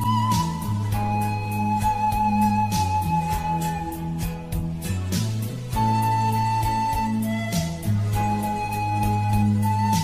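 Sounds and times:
pan flute: 0:00.0 - 0:10.0.

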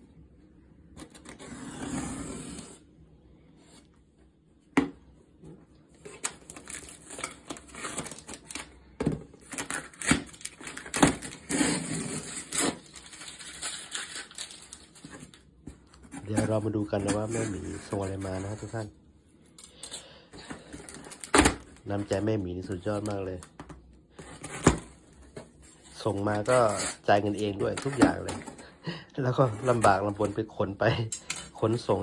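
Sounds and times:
cardboard rustling: 0:09.4 - 0:18.9
knife cutting packing tape: 0:09.5 - 0:14.7, 0:26.3 - 0:28.1.

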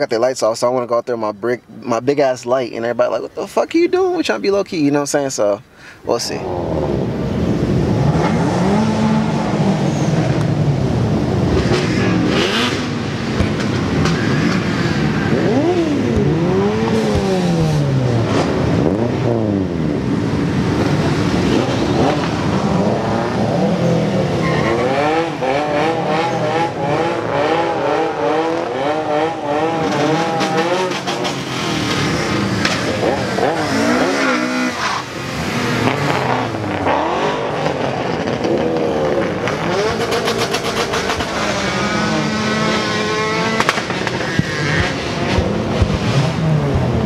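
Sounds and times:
car engines revving: 0:06.3 - 0:47.0
cars driving past: 0:06.4 - 0:47.0.

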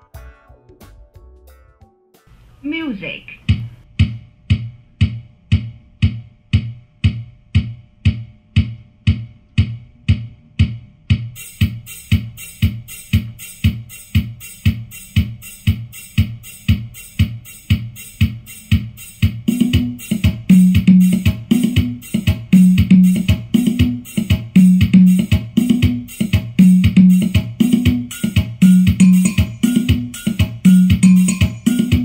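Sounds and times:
electronic music: 0:00.0 - 0:03.8, 0:11.4 - 0:32.0
bass line: 0:02.7 - 0:32.0
drum-machine beat: 0:02.8 - 0:32.0
hi-hat ticks: 0:11.4 - 0:32.0.

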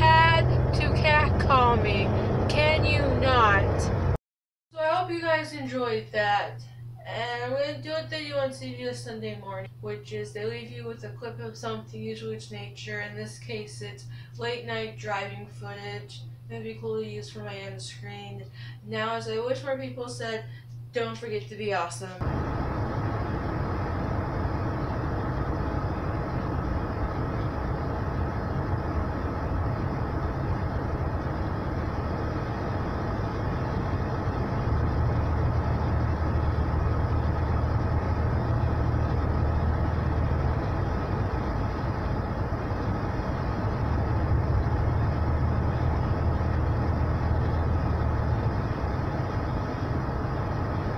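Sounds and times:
car road and engine noise: 0:00.0 - 0:04.2, 0:22.2 - 0:50.9
deep low hum: 0:00.0 - 0:04.2, 0:22.2 - 0:50.9.

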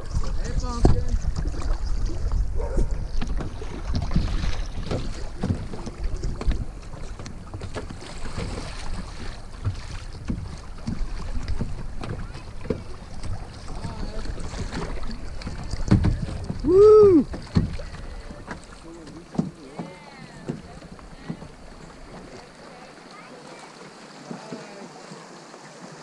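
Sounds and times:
wind rumbling on microphone: 0:00.0 - 0:18.4
creek water rushing and splashing: 0:00.0 - 0:26.0
paddle splashes: 0:00.0 - 0:26.0.

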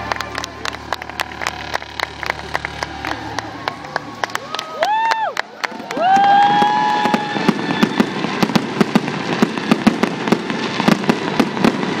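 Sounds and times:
fireworks popping and banging: 0:00.0 - 0:12.0
high fireworks whistle: 0:00.1 - 0:12.0.

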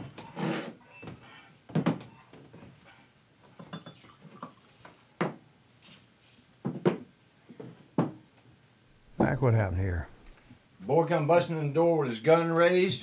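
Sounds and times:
glassware clinking on wooden counter: 0:03.6 - 0:04.6.

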